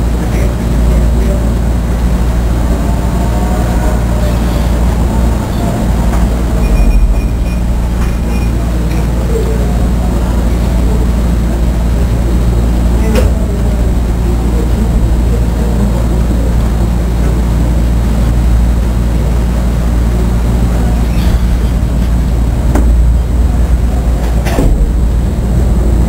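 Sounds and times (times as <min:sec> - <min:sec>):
fans and air conditioner humming: 0:00.0 - 0:26.0.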